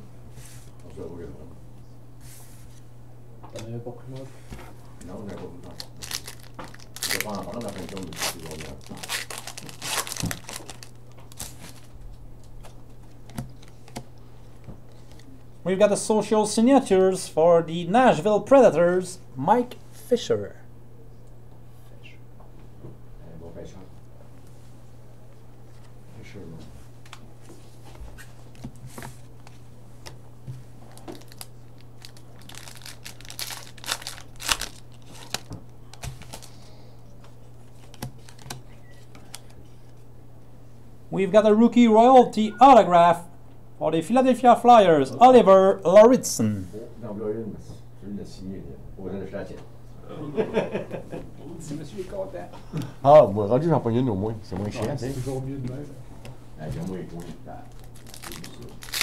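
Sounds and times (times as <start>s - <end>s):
steady low hum: 0.0s - 59.0s
wrapper tearing and crinkling: 5.6s - 12.0s, 30.9s - 36.6s, 37.8s - 38.6s, 57.7s - 59.0s
cards being flipped through: 5.7s - 11.9s, 30.9s - 36.6s, 37.7s - 39.6s.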